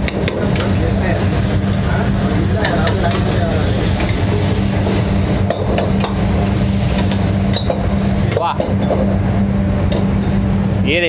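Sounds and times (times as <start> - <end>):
sizzling: 0.0 - 10.9
steady low hum: 0.0 - 11.0
ladle clanking on wok: 2.6 - 9.2.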